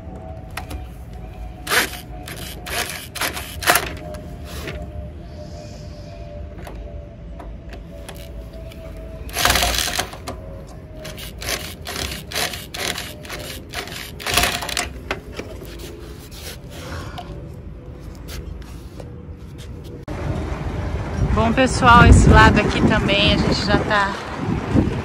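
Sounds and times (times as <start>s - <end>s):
electric drill driving screws: 1.7s - 4.0s, 9.3s - 10.2s, 11.0s - 14.9s.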